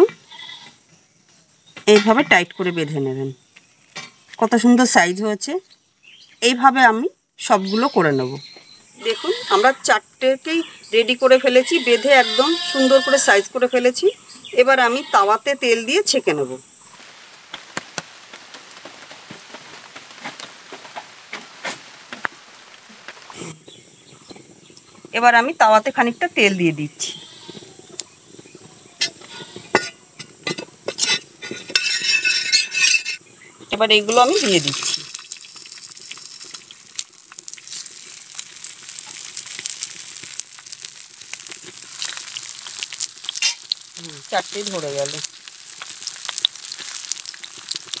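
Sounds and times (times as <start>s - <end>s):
oil sizzling on griddle: 8.6s - 48.0s
rain pattering on leaves: 15.9s - 30.2s, 33.3s - 48.0s.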